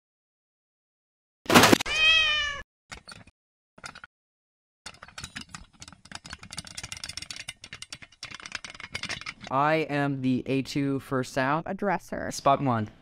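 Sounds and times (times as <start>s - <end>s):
soft clatter of small knocks: 4.9s - 9.5s.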